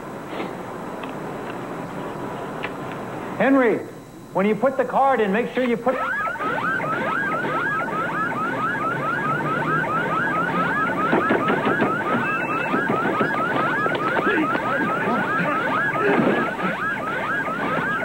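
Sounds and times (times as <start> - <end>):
security alarm whooping: 3.4 - 18.0.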